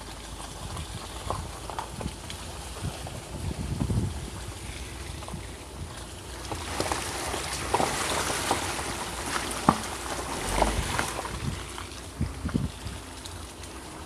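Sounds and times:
stones clicking under tyres: 0.0 - 14.0
tyres rolling on wet gravel: 0.0 - 14.0
water splashing: 4.1 - 14.0.

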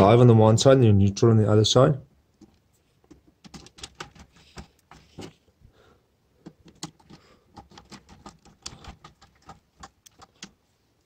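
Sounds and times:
screwdriver clicking and scraping: 6.4 - 10.6.

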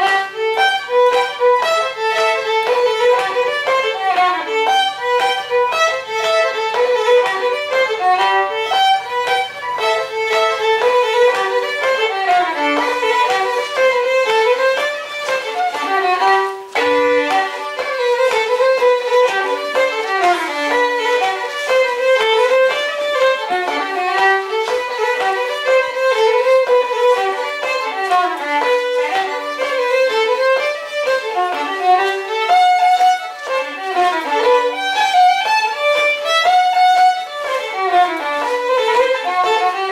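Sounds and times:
fiddle playing folk dance tune: 0.0 - 39.9.

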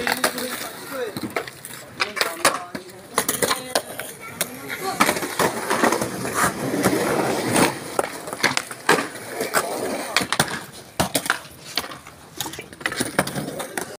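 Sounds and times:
skateboard decks clacking: 0.0 - 14.0
skateboards rolling on concrete: 0.0 - 14.0.

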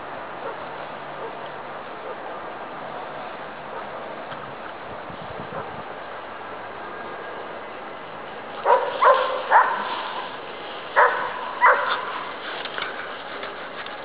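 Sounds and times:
dog barking: 8.6 - 10.3, 11.0 - 12.2.

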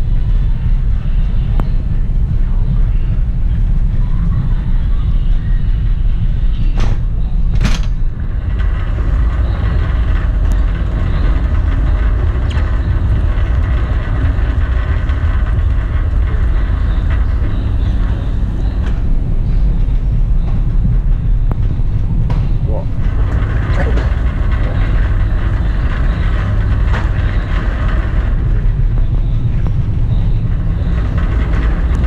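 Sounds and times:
trolley wheels rolling on hard floor: 8.2 - 19.4, 22.9 - 32.0.

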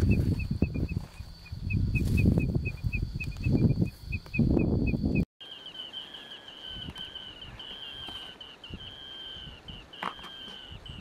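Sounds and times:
wind buffeting microphone: 0.0 - 5.2, 10.6 - 11.0
crake rapid high-pitched calls: 0.0 - 11.0.

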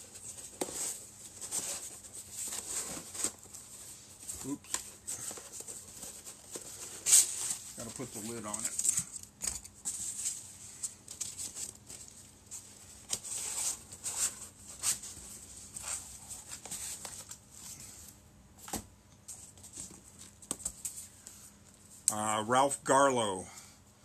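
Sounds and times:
cardboard boxes scraping and knocking: 0.2 - 3.8.

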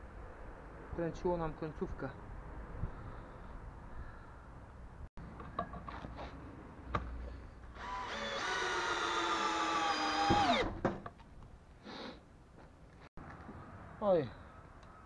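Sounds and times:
drill motor whining: 7.8 - 10.7.

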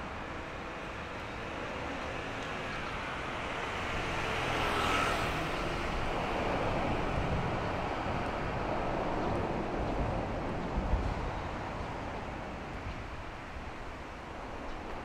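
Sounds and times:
vehicle passing by: 3.5 - 8.1.

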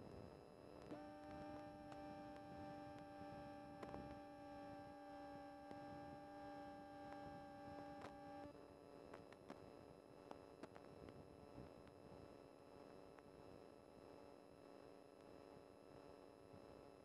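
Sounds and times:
faint electronic hum: 0.0 - 17.0.

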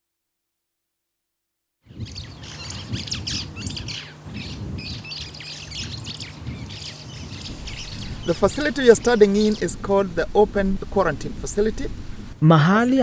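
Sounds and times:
small birds chirping: 1.8 - 12.4
steady low hum: 2.1 - 12.4.

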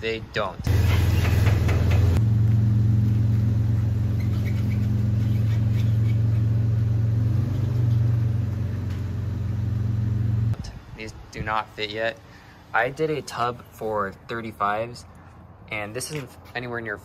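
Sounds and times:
car engine idling: 0.7 - 5.3.

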